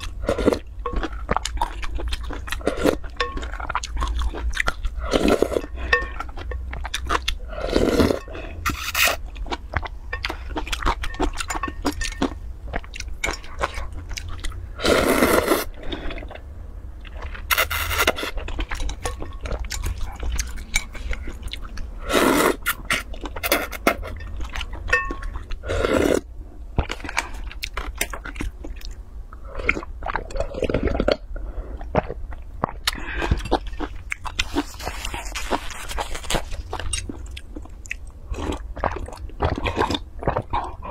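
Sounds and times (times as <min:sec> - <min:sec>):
slurping noodles: 0:14.8 - 0:15.7
chewing: 0:15.6 - 0:22.0, 0:26.8 - 0:40.9.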